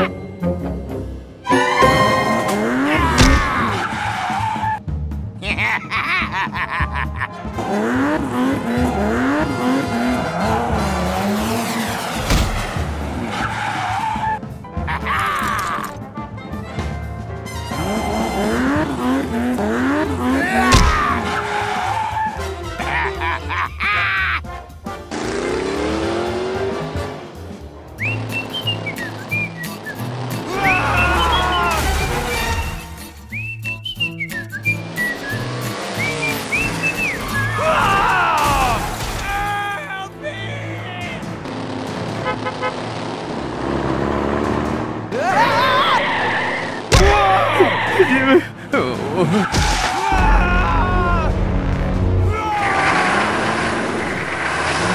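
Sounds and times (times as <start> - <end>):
tyres skidding: 0.0 - 54.9
engine revving: 1.8 - 4.3, 7.4 - 14.3, 17.6 - 22.8, 24.8 - 33.1, 34.4 - 37.9, 41.2 - 48.2, 51.2 - 54.9
engine running: 7.4 - 13.3, 17.8 - 21.4, 34.6 - 37.5, 51.4 - 54.9.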